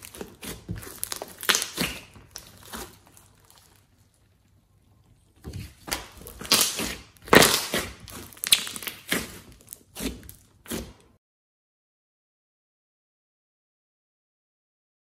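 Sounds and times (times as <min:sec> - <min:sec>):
slime squishing by hand: 0:00.0 - 0:11.2.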